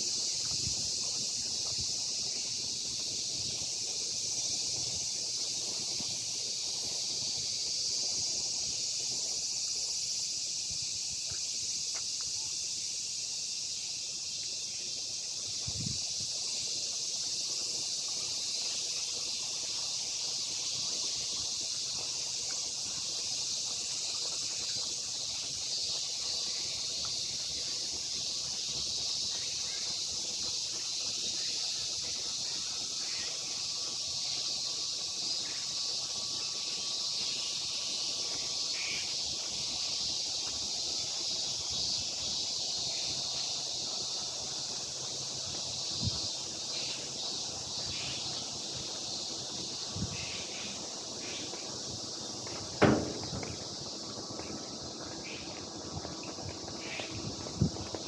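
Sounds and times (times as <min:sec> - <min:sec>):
cicadas buzzing: 0:00.0 - 0:58.0
low thump: 0:52.5 - 0:53.6.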